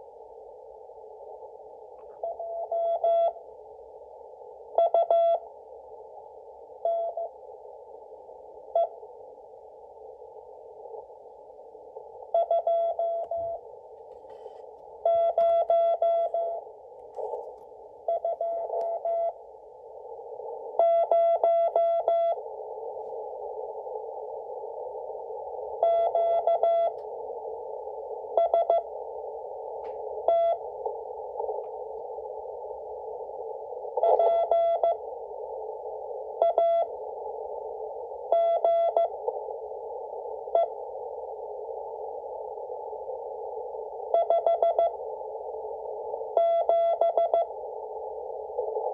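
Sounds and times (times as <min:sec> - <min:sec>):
receiver hiss: 0:00.0 - 0:48.9
morse code beeps: 0:04.8 - 0:05.4, 0:15.0 - 0:16.6, 0:20.8 - 0:22.4, 0:25.8 - 0:27.0, 0:28.4 - 0:28.9, 0:30.3 - 0:30.6, 0:34.0 - 0:35.0, 0:38.4 - 0:39.1, 0:44.2 - 0:45.0, 0:46.4 - 0:47.5.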